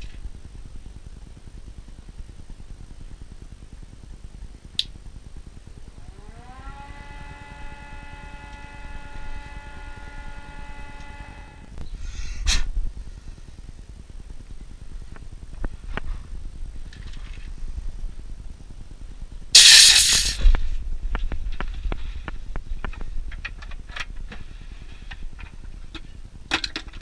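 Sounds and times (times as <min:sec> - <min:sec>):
machine whine: 0:05.3 - 0:12.0.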